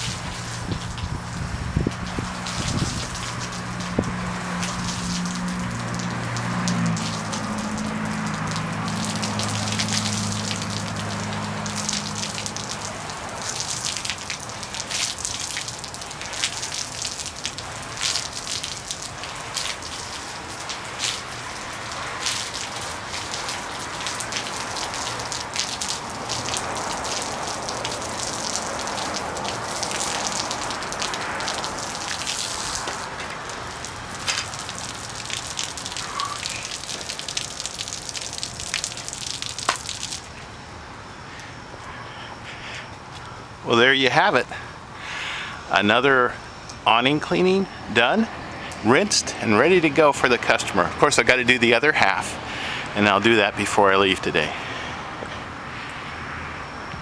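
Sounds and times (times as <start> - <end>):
water dripping: 0.0 - 40.4
water spraying on awning: 0.0 - 56.1.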